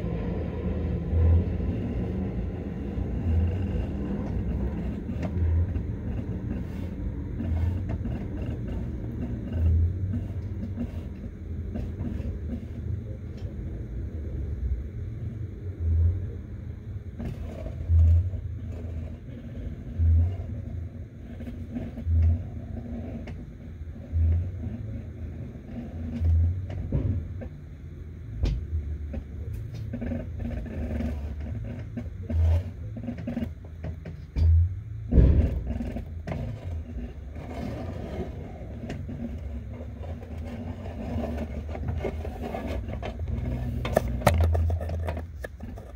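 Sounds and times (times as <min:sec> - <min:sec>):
small scrapes and clicks: 0:01.6 - 0:13.5, 0:17.2 - 0:27.5, 0:29.1 - 0:34.4, 0:35.1 - 0:45.9
dull thumps: 0:33.8 - 0:36.6
camera handling rumble: 0:38.9 - 0:45.9.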